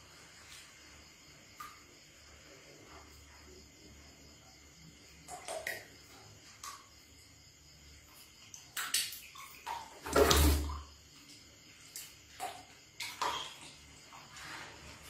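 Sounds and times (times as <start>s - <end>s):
water splashing in plastic basin: 5.2s - 7.2s, 8.2s - 15.0s.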